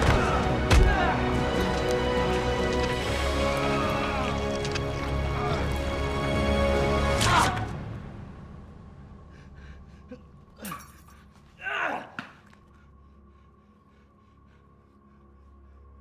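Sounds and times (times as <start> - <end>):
music: 0.0 - 16.0.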